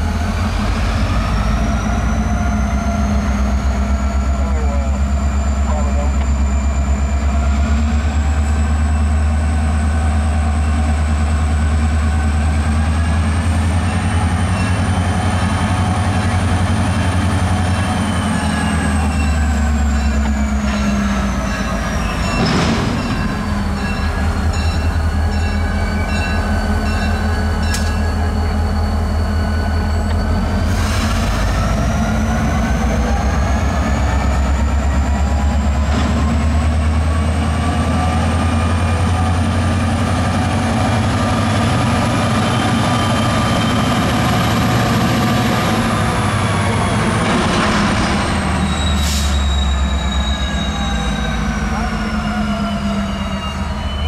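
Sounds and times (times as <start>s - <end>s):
diesel locomotives working hard: 0.0s - 54.0s
sharp bang: 22.3s - 23.6s.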